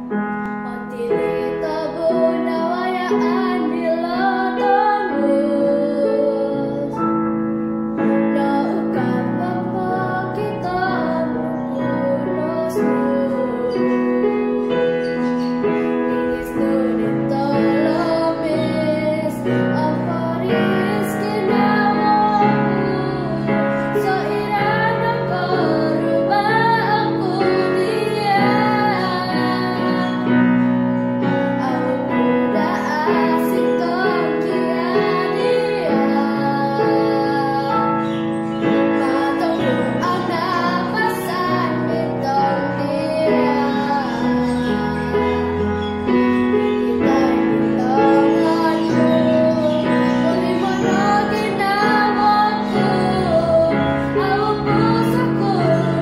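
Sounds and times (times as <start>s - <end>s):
girl singing: 0.0s - 56.0s
piano accompaniment: 0.0s - 56.0s.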